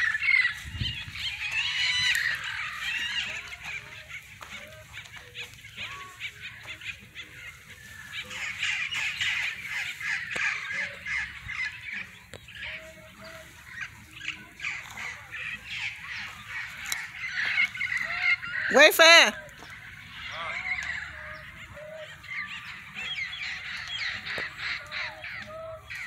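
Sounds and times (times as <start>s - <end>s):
flock of birds calling: 0.0s - 26.0s.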